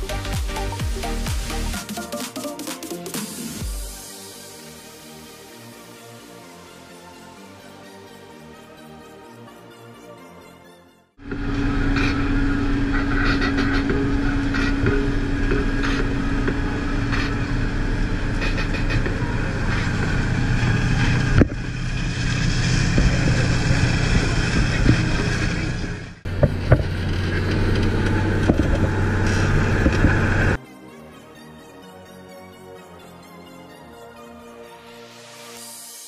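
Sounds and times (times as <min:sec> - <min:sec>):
tractor diesel engine under load: 0:11.2 - 0:30.6.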